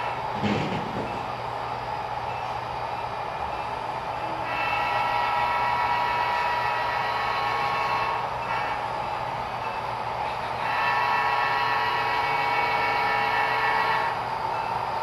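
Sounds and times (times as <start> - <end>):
model locomotive engine drone: 0.0 - 15.0.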